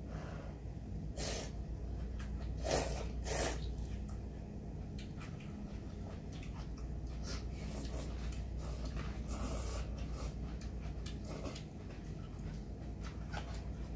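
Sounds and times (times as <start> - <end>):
steady low hum: 0.0 - 13.9
chewing: 3.6 - 13.9.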